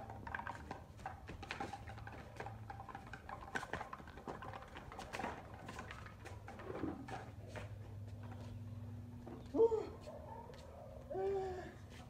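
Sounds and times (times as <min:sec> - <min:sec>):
dog paws tapping on stone: 0:00.0 - 0:08.4.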